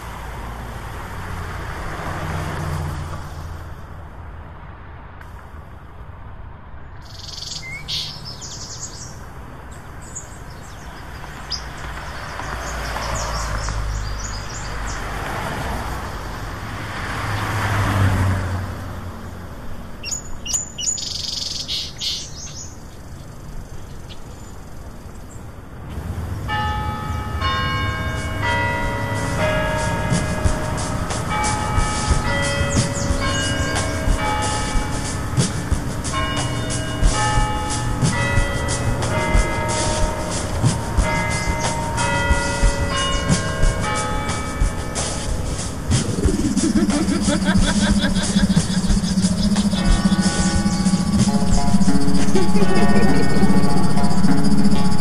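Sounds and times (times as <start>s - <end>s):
road traffic passing: 0.0s - 55.0s
small birds chirping: 7.0s - 15.2s, 20.0s - 25.5s, 29.2s - 55.0s
sustained musical tones: 26.7s - 55.0s.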